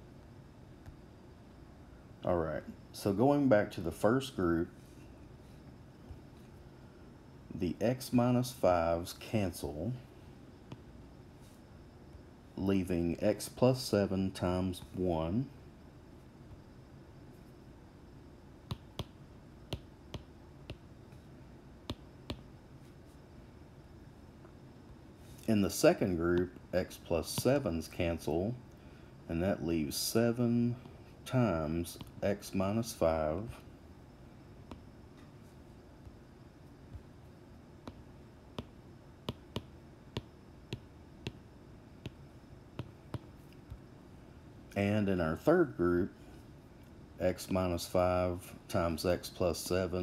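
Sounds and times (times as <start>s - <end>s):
faint room hiss: 0.0s - 50.0s
stylus tapping on glass screen: 18.7s - 20.8s, 37.8s - 38.0s, 38.6s - 41.4s, 42.8s - 43.3s.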